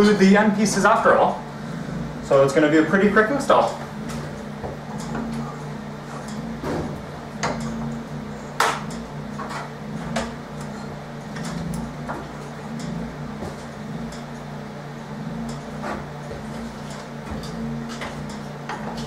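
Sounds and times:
steady low hum: 0.0 - 19.0.

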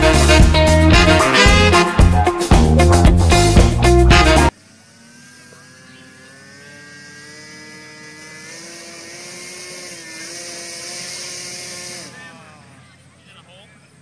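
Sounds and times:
model airplane motor buzzing: 0.0 - 1.9, 4.1 - 13.2.

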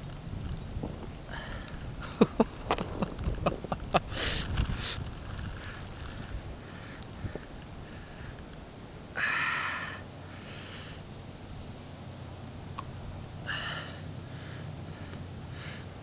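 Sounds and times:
person sniffing: 4.1 - 5.0, 9.2 - 11.0.

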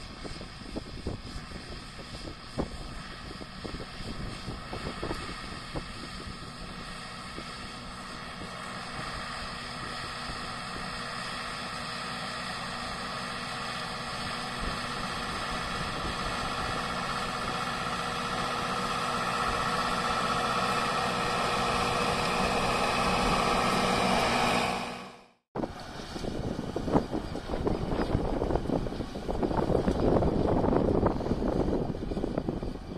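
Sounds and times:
tractor diesel engine droning: 0.0 - 32.9.

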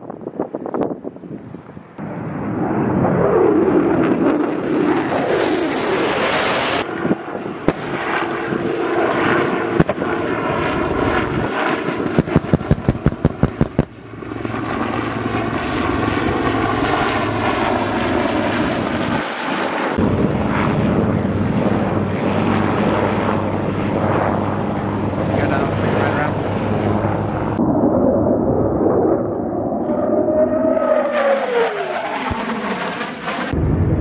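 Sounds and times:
helicopters humming: 0.0 - 34.0
jet engine rush: 0.0 - 34.0
pyrotechnic bangs and cracks: 4.1 - 14.0, 32.2 - 34.0.

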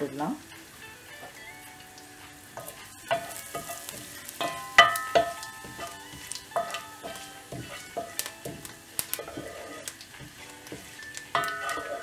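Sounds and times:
spices sizzling in hot oil: 0.0 - 12.0
spatula clinking against pot: 2.5 - 12.0.

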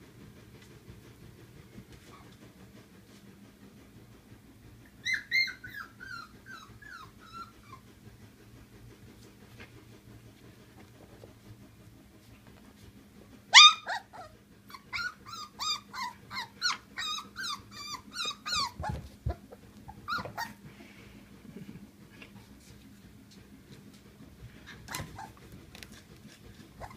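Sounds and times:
puppies yipping and whimpering: 5.0 - 7.8, 13.5 - 20.6, 24.9 - 25.4
puppy yelp: 5.0 - 7.8, 13.5 - 20.6, 24.9 - 25.4.

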